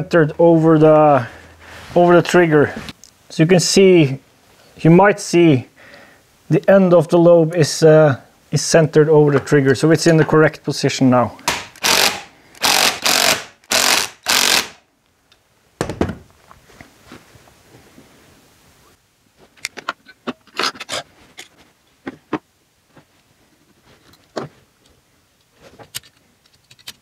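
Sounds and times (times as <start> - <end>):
cordless power tool bursts: 11.5 - 14.8
metal parts clicking and tapping: 25.9 - 27.0.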